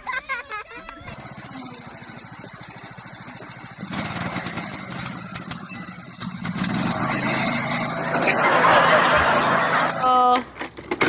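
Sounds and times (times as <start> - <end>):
lawn mower engine putter: 0.9 - 2.5, 3.2 - 8.0, 10.3 - 11.0
rattling clatter: 1.0 - 9.4, 10.3 - 11.0.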